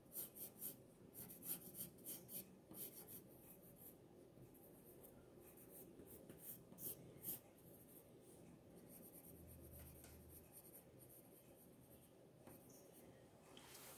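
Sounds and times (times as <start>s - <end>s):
pencil scratching on paper: 0.1s - 4.0s, 4.7s - 8.1s, 8.8s - 11.7s.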